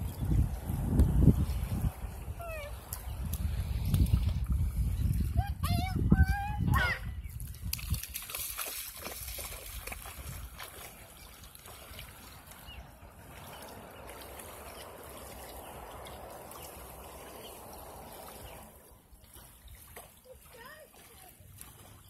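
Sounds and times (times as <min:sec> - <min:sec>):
feet splashing in shallow water: 0:00.0 - 0:05.6, 0:06.3 - 0:22.0
water trickling: 0:07.4 - 0:22.0.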